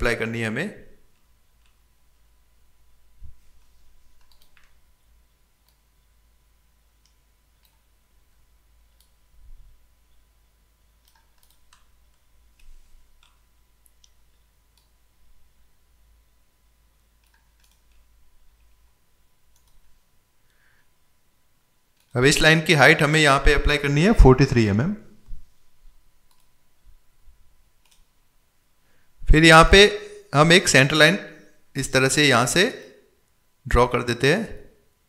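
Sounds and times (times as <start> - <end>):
low steady hum: 0.0 - 35.0
computer mouse clicks: 1.1 - 1.8, 4.2 - 4.8, 5.6 - 5.9, 7.0 - 7.9, 8.9 - 9.2, 11.0 - 15.0, 17.2 - 18.7, 19.5 - 19.9, 26.3 - 26.6, 27.8 - 28.1.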